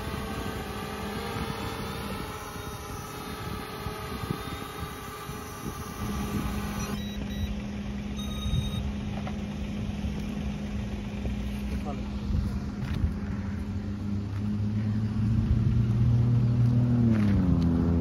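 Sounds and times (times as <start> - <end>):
wind buffeting microphone: 0.0 - 7.0
drone hovering hum: 0.0 - 18.0
low steady hum: 0.0 - 18.0.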